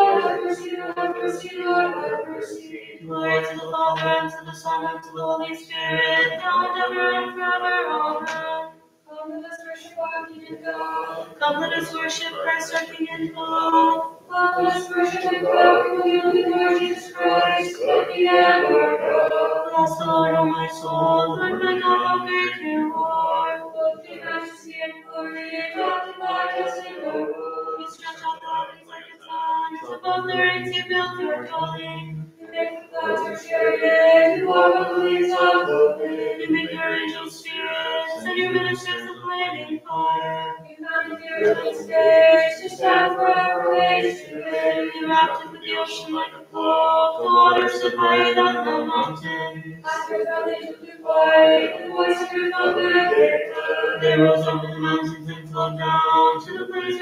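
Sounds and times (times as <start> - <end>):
choir chanting unaccompanied: 0.0 - 57.0.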